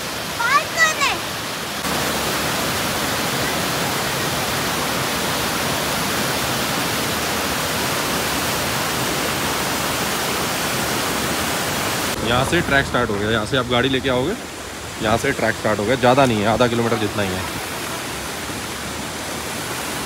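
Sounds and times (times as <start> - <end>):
flowing water rushing: 0.0 - 20.0.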